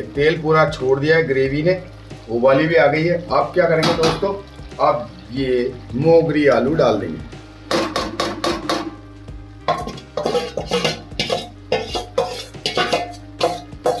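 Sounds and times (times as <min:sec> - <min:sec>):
metal spatula scraping steel bowl: 0:09.7 - 0:14.0.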